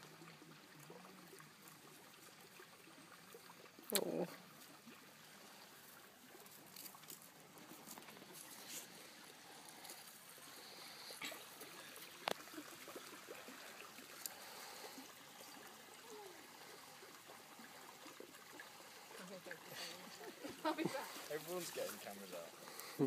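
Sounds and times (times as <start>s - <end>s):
distant river water rushing: 0.0s - 23.0s.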